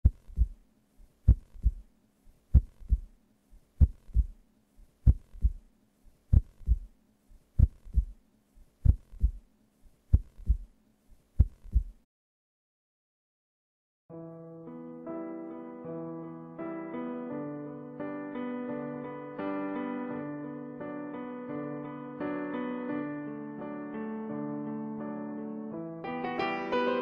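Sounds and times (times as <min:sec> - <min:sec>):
heartbeat double thumps: 0:00.0 - 0:00.6, 0:01.2 - 0:01.9, 0:02.5 - 0:03.1, 0:03.8 - 0:04.4, 0:05.0 - 0:05.7, 0:06.3 - 0:06.9, 0:07.6 - 0:08.2, 0:08.8 - 0:09.4, 0:10.1 - 0:10.7, 0:11.4 - 0:12.0
faint steady hum: 0:00.0 - 0:12.0.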